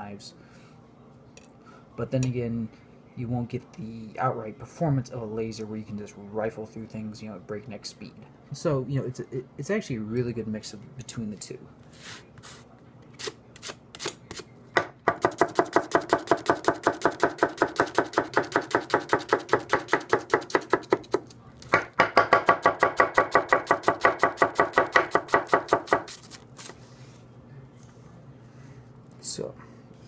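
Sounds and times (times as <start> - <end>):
knife chopping on wooden board: 14.8 - 26.2.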